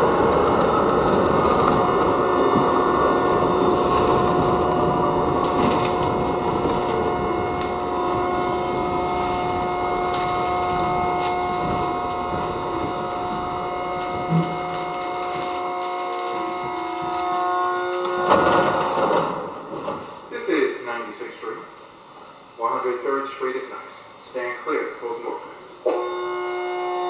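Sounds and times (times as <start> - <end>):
wheel-on-rail rumble: 0.0 - 20.3
steady high whine: 0.0 - 27.0.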